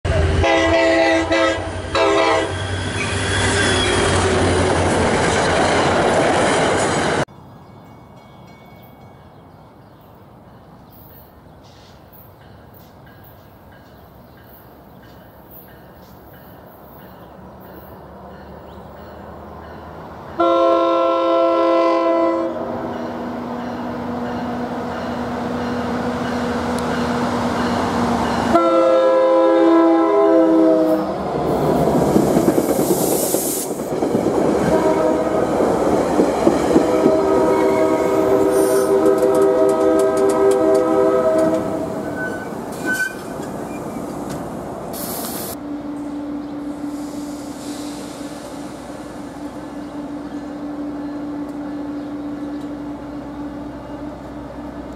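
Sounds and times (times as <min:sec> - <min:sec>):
train horn blasts: 0:00.1 - 0:04.6, 0:20.4 - 0:23.1, 0:28.5 - 0:31.2, 0:34.6 - 0:35.6, 0:36.7 - 0:43.2
locomotive engine droning: 0:33.9 - 0:54.9
wheels clacking over rail joints: 0:38.9 - 0:45.3.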